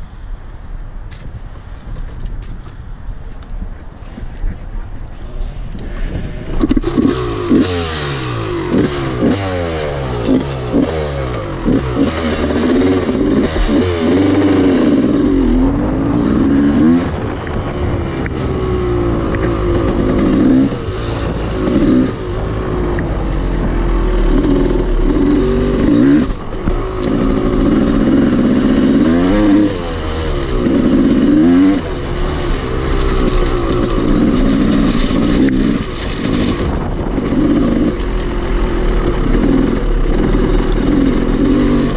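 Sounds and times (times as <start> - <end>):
dirt bike engine revving: 6.4 - 41.9.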